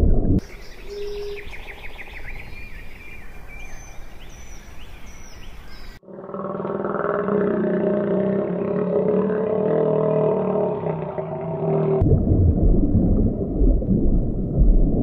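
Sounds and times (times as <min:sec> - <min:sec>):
small birds chirping: 0:00.4 - 0:06.0.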